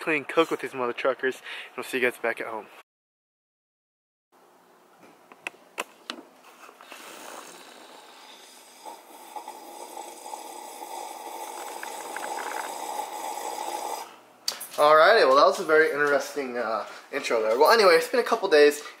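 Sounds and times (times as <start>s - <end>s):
man gulping a drink: 6.8s - 14.1s.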